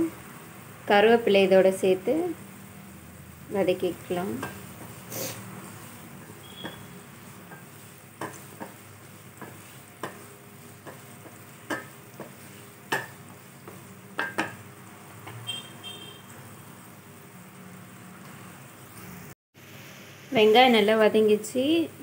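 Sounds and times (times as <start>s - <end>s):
vegetables sizzling in oil: 0.0s - 22.0s
wooden spatula scraping pan: 4.4s - 12.8s.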